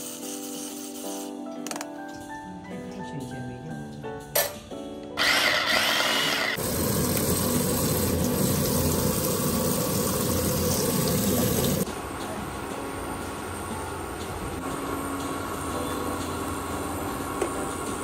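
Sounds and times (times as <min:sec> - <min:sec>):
background music: 0:00.0 - 0:18.0
food chopper whirring: 0:05.2 - 0:07.4
tap water running onto leaves: 0:06.6 - 0:11.8.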